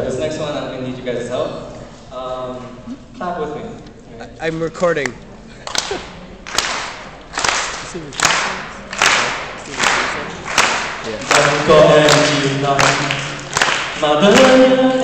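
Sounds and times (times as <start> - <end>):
hand claps echoing: 5.0 - 15.0
man singing a cappella: 11.2 - 15.0.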